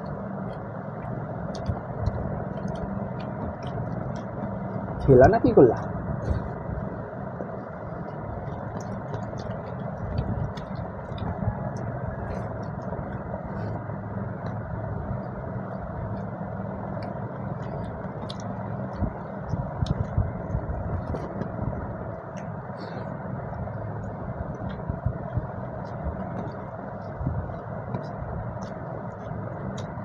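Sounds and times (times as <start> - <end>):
chewing and lip smacks: 0.0 - 30.0
steady low hum: 0.0 - 30.0.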